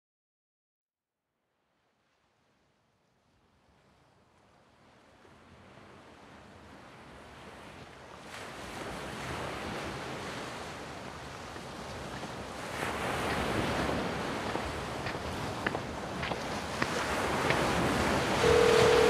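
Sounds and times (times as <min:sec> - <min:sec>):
ocean surf washing: 0:08.5 - 0:19.0.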